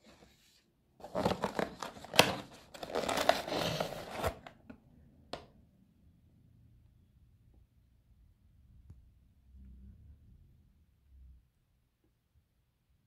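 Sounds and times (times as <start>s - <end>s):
rustling and crinkling: 0.0s - 4.6s.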